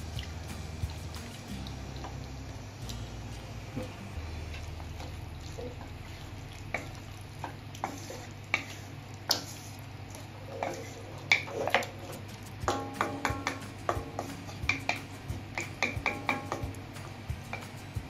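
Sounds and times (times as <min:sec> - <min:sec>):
sauce sizzling: 0:00.0 - 0:18.0
steady low hum: 0:00.0 - 0:18.0
spatula scraping a wok: 0:07.8 - 0:16.6.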